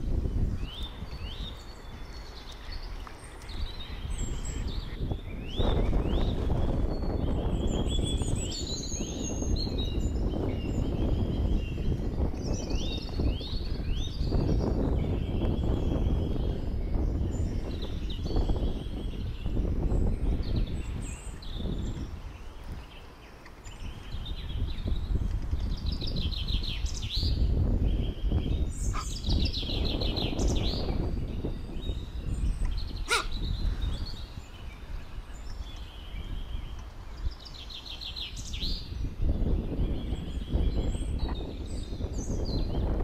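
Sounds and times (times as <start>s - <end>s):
songbirds trilling: 0.0s - 43.0s.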